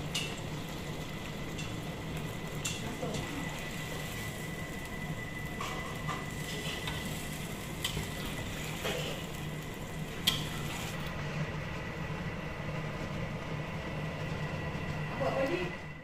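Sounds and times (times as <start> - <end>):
sauce simmering in a wok: 0.0 - 16.0
steady low hum: 0.0 - 16.0.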